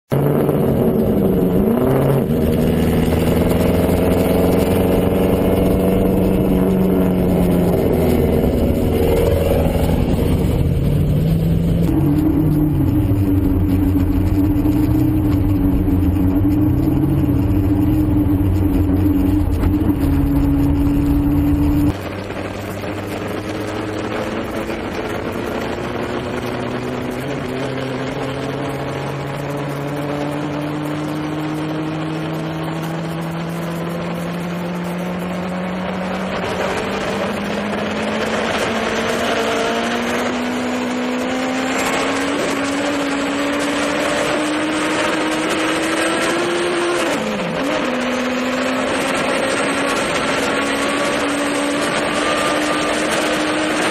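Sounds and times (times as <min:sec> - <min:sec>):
motorcycle engine running hard: 0:00.1 - 0:53.9.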